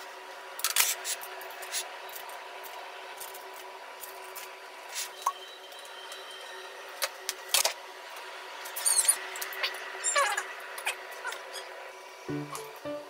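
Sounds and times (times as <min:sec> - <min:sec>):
room hum: 0:00.0 - 0:13.0.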